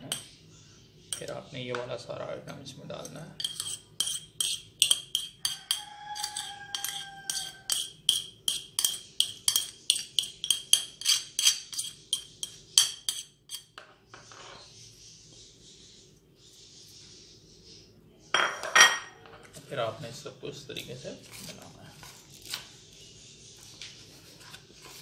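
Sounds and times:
spoon scraping and tapping plate: 0:03.0 - 0:14.6.

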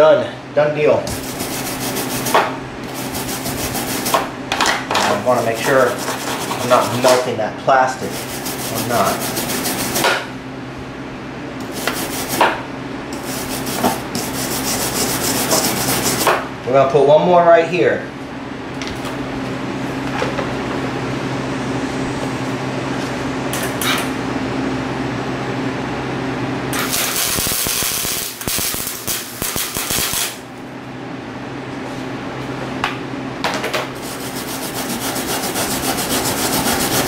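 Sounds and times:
steady low hum: 0:00.0 - 0:37.0
wire brush scrubbing metal: 0:01.1 - 0:04.2, 0:05.1 - 0:07.3, 0:08.0 - 0:10.2, 0:11.6 - 0:12.5, 0:13.2 - 0:16.3, 0:34.0 - 0:37.0
welder arc crackling: 0:26.7 - 0:30.5.

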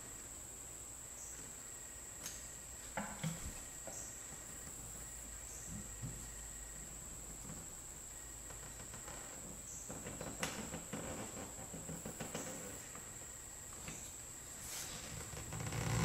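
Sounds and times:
steady high whine: 0:00.0 - 0:09.9.

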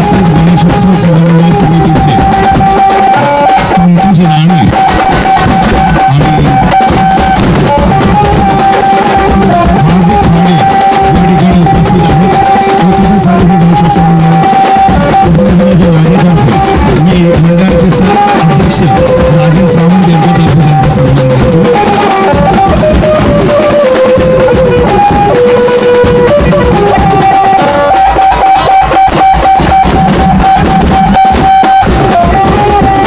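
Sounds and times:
drums playing dense beat: 0:00.0 - 0:33.0
held melody line: 0:00.0 - 0:33.0.

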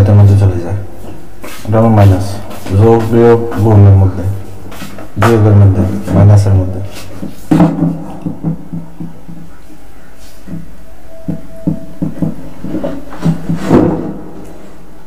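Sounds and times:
soft knocks: 0:07.2 - 0:09.6, 0:10.5 - 0:14.3.

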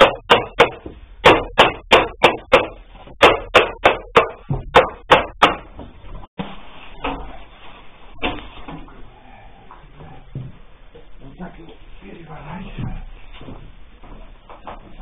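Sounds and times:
rapid sharp knocks: 0:00.0 - 0:05.8.

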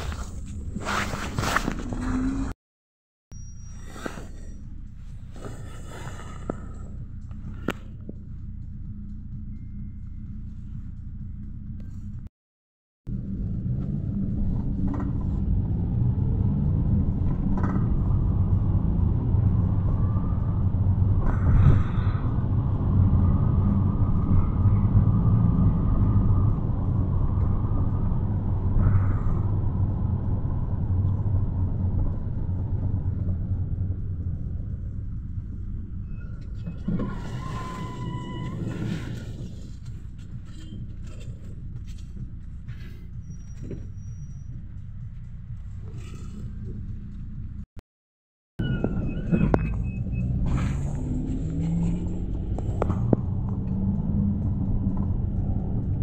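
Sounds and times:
engine and road rumble: 0:00.0 - 0:02.6, 0:03.3 - 0:12.3, 0:13.1 - 0:47.8, 0:48.6 - 0:56.0
short falling squeal: 0:03.3 - 0:04.6, 0:36.0 - 0:39.4, 0:48.6 - 0:50.8.

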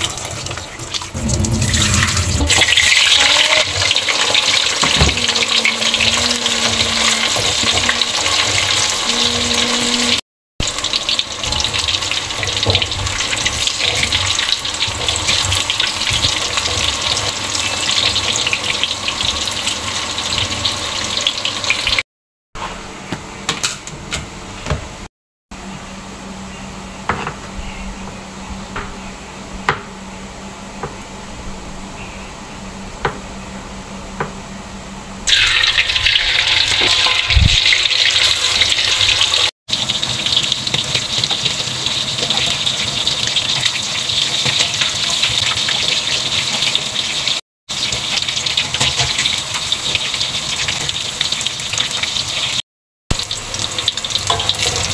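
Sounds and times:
oil sizzling in a wok: 0:00.0 - 0:22.0, 0:35.2 - 0:54.9.

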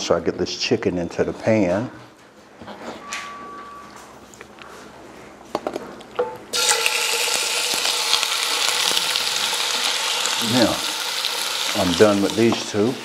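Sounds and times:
chicken sizzling in oil: 0:06.6 - 0:13.0.

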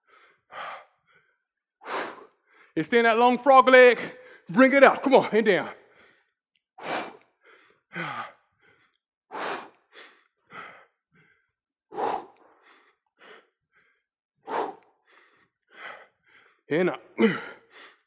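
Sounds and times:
faint breaths: 0:00.0 - 0:02.8, 0:05.9 - 0:18.0.

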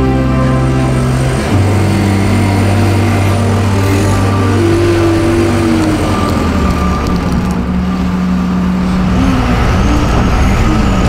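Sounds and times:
diesel engine running: 0:00.0 - 0:11.0
thin steady whine: 0:00.0 - 0:11.0.

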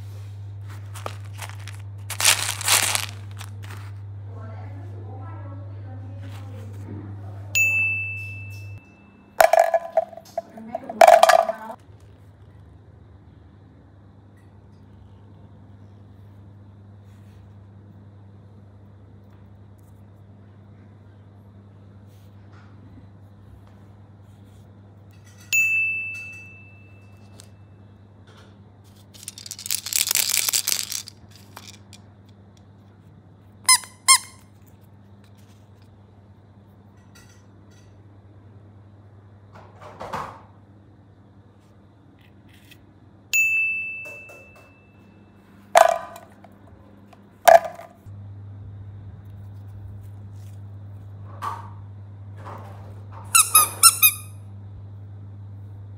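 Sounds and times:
bright dings: 0:07.6 - 0:09.3, 0:25.5 - 0:27.2, 0:43.4 - 0:45.3
rubber toys squeaking: 0:33.7 - 0:34.4, 0:53.3 - 0:54.3
steady low hum: 0:40.5 - 0:53.2.

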